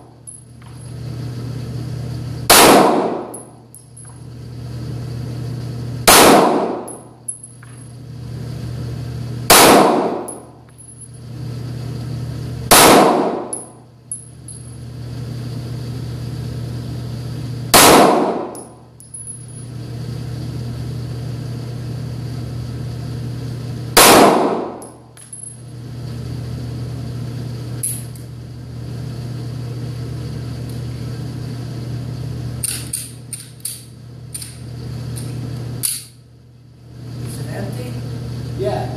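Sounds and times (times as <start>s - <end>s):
steady low hum: 0.0s - 38.9s
pistol shots ringing indoors: 2.5s - 3.5s, 6.0s - 7.1s, 9.5s - 10.4s, 12.7s - 13.8s, 17.7s - 18.7s, 24.0s - 25.0s.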